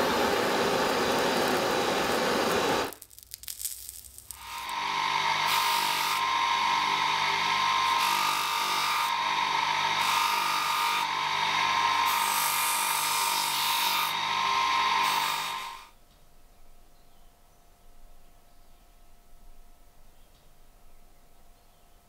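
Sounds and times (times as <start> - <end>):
bench motor whining: 4.4 - 15.8.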